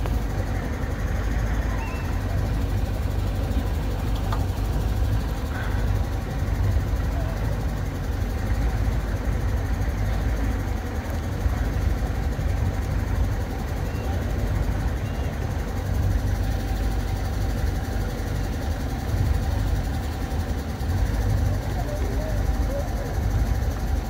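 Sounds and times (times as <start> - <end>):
boat motor rumbling: 0.0 - 24.0.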